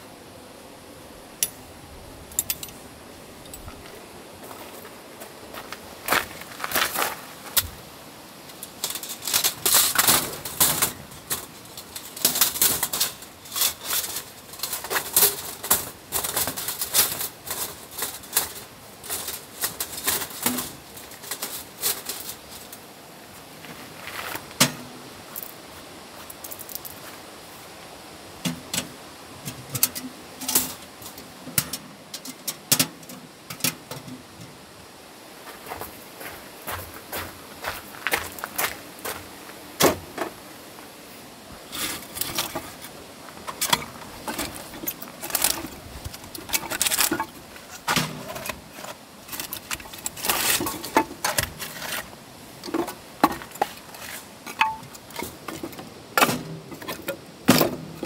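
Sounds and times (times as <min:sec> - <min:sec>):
metal panels clicking and clattering: 0:08.5 - 0:22.8, 0:28.4 - 0:34.6, 0:41.7 - 0:58.0.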